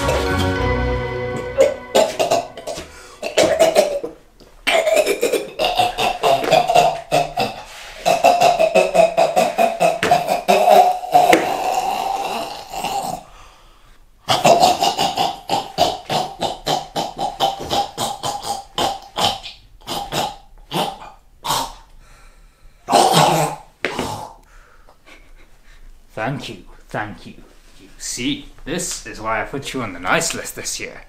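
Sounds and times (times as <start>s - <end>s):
man gasping and choking coughs: 1.6s - 11.7s, 14.3s - 21.9s, 22.9s - 24.4s.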